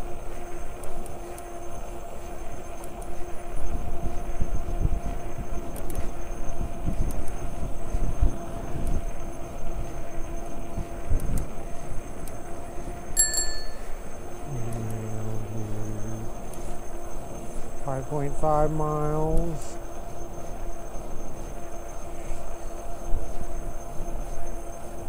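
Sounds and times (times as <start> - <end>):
bicycle tyre rumble: 0.0 - 18.4, 19.2 - 25.0
faint steady hum: 0.0 - 25.0
wind buffeting microphone: 3.2 - 13.2
bicycle bell ring: 13.2 - 13.9.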